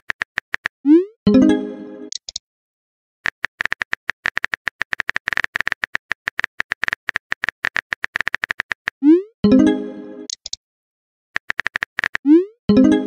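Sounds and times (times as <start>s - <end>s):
phone keyboard typing clicks: 2.1s - 2.4s, 3.3s - 8.9s, 10.3s - 10.6s, 11.4s - 12.3s.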